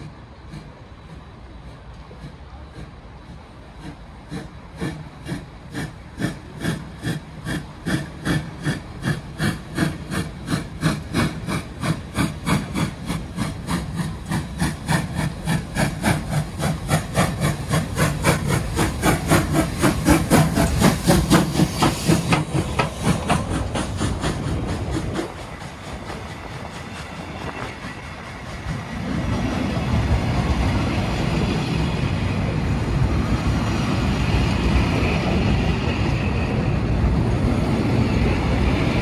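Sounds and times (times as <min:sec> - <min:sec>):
steam locomotive chuffing: 0:00.0 - 0:39.0.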